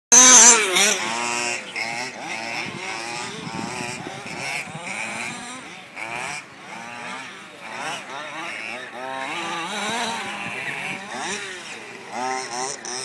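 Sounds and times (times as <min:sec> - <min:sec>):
small two-stroke engines revving: 0:00.1 - 0:13.0.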